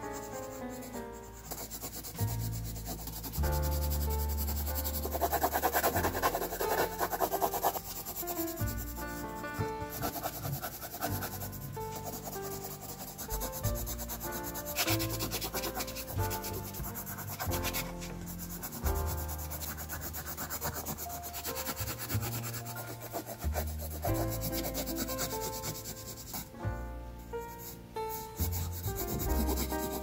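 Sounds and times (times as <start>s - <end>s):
pencil scratching on paper: 0.0s - 26.6s, 27.6s - 30.0s
background music with bass notes: 8.1s - 12.0s, 26.4s - 30.0s.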